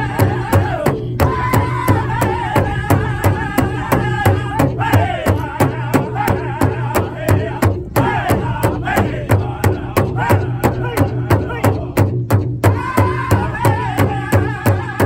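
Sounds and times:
large drum beating: 0.0s - 15.0s
men singing: 0.0s - 15.0s.

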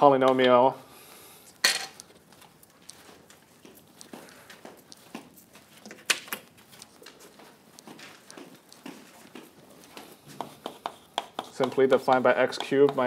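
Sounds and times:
chalk tapping on blackboard: 10.0s - 13.0s.

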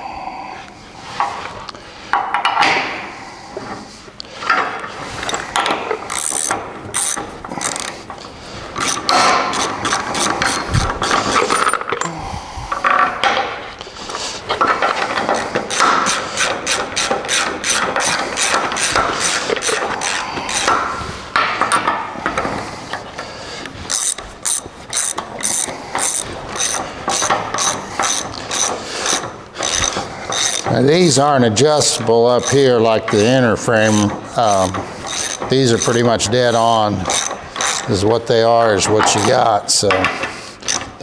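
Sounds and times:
ratchet wrench clicking: 5.2s - 8.0s, 8.8s - 11.8s, 14.9s - 20.8s, 23.9s - 31.2s, 33.8s - 38.0s, 40.6s - 40.9s.

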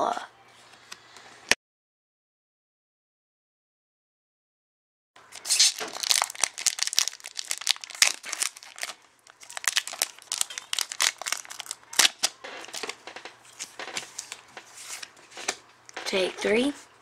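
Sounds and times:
foil wrapper crinkling and tearing: 5.2s - 15.6s.

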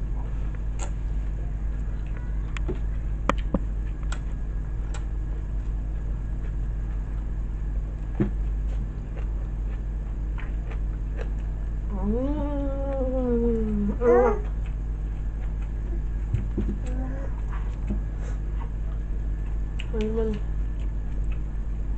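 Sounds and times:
low steady hum: 0.0s - 21.9s.

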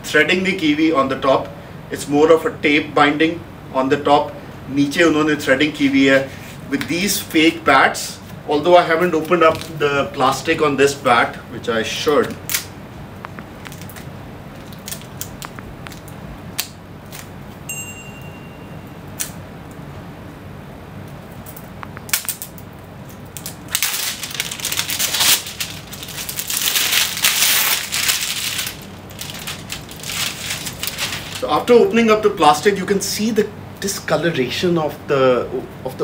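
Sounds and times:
plastic film crinkling and tearing: 13.4s - 17.4s, 21.6s - 31.7s
small clicks and rustles: 21.4s - 31.4s.

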